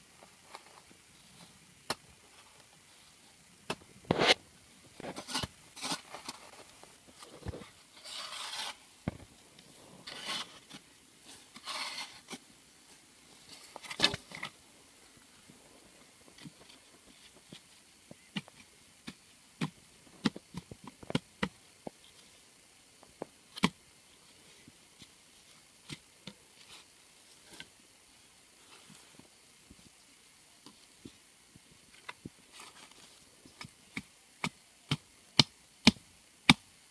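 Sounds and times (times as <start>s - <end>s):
hoe scraping dry soil: 4.1s - 4.4s, 5.0s - 8.9s, 9.7s - 12.4s.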